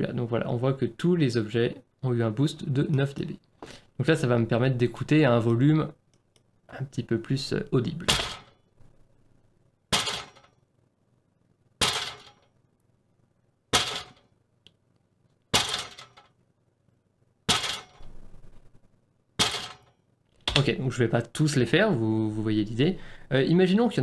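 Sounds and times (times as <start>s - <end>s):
sharp impact hits: 11.8s - 12.4s, 13.7s - 14.2s.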